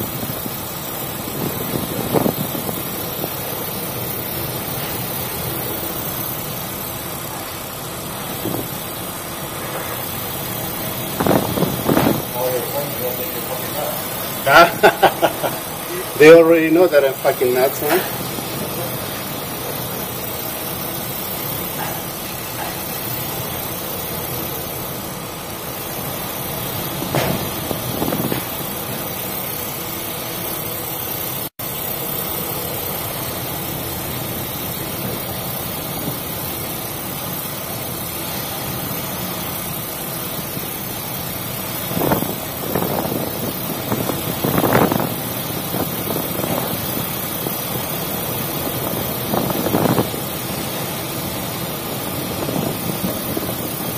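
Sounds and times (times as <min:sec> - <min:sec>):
wind and sea noise: 0:00.0 - 0:04.6, 0:10.9 - 0:12.4, 0:26.9 - 0:28.6, 0:41.8 - 0:53.9
ship engine running: 0:00.0 - 0:53.9.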